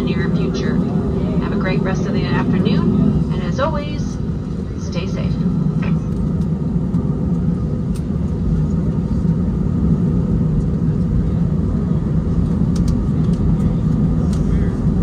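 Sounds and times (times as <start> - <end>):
jet engines idling in cabin: 0.0 - 15.0.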